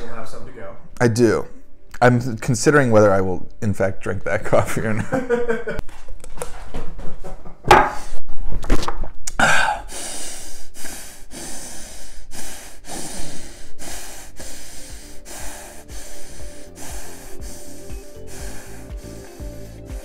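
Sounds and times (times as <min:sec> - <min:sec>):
man gulping: 0:09.2 - 0:09.8
man gasping: 0:09.3 - 0:20.0
music with steady beat: 0:14.4 - 0:20.0.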